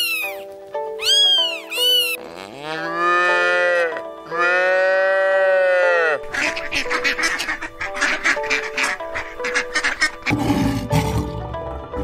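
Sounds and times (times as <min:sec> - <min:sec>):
light background music: 0:00.0 - 0:12.0
cat meowing: 0:01.0 - 0:02.2
cow mooing: 0:02.2 - 0:06.2.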